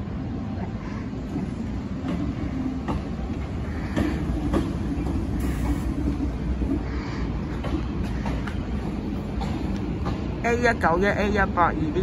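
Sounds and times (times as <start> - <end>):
train wheels rumbling on rails: 0.0 - 12.0
wheels clicking over rail joints: 1.9 - 6.8, 7.4 - 10.8.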